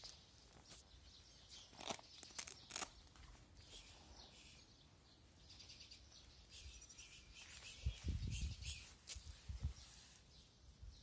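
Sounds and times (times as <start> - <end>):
cats crunching dry kibble: 1.6 - 3.2.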